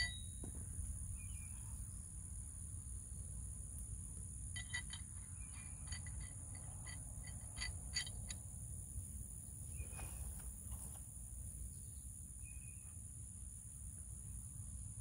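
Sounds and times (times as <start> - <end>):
light metallic clicks and clinks: 4.5 - 8.5.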